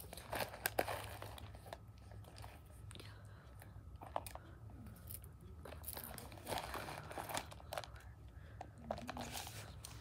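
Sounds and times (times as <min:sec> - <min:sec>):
close rustling and crinkling: 0:05.6 - 0:08.0, 0:08.6 - 0:10.0.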